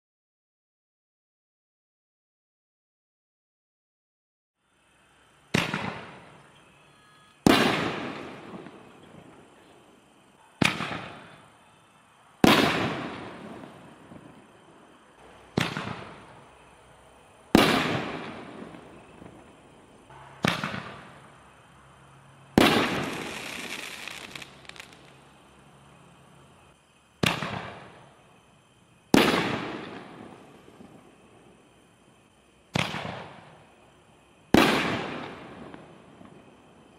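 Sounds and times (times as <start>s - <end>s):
firework hissing crackle: 4.6s - 36.9s
firework bangs with echo: 5.5s - 6.4s, 7.4s - 9.4s, 10.6s - 11.5s, 12.4s - 14.6s, 15.2s - 16.6s, 17.5s - 21.4s, 22.5s - 25.2s, 27.2s - 31.1s, 32.7s - 33.7s, 34.5s - 36.4s.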